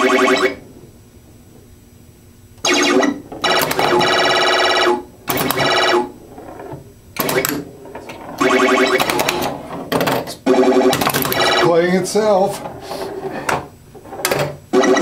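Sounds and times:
pinball machine electronic tones: 0.0s - 0.9s, 2.6s - 12.2s, 14.3s - 15.0s.

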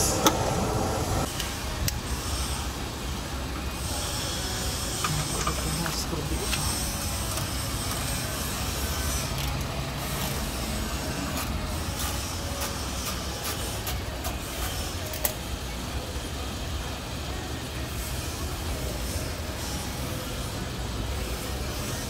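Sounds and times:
steady low rumble: 0.0s - 2.1s.

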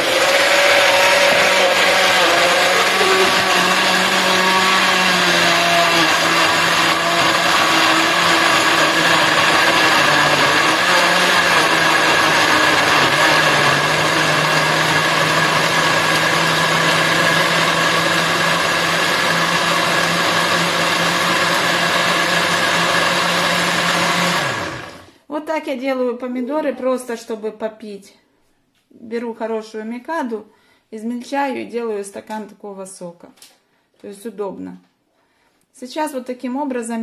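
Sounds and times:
blender running: 0.0s - 25.1s.

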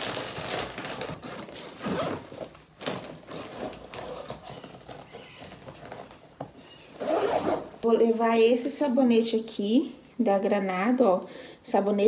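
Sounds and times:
items rustling in a bag: 0.0s - 7.7s.

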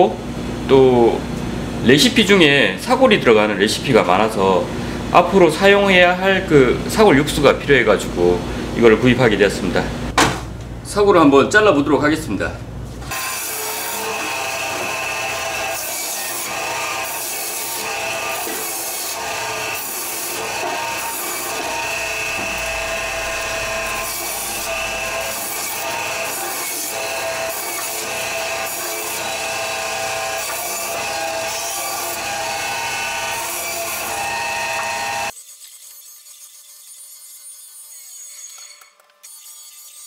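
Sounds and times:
band saw whining: 13.1s - 40.0s
blade rasping through bone: 35.3s - 40.0s.

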